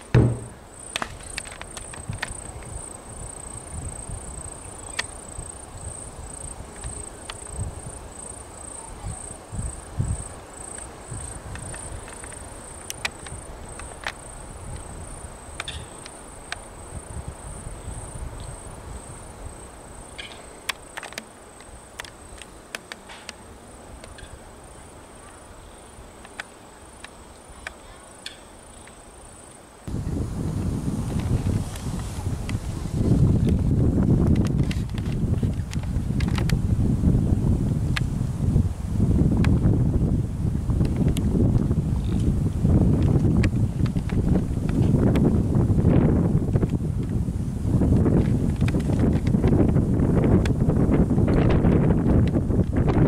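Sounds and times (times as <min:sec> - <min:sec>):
wind rumble on microphone: 0:00.0 - 0:20.3, 0:29.8 - 0:53.0
insect chirping: 0:00.0 - 0:52.4
faint clicks: 0:26.2 - 0:29.0.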